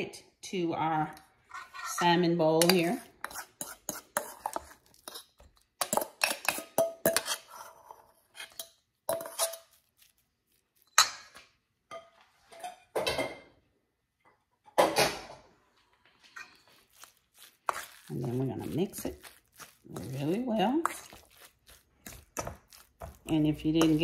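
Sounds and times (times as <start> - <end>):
fork scraping metal bowls: 1.4 - 10.1, 16.2 - 24.0.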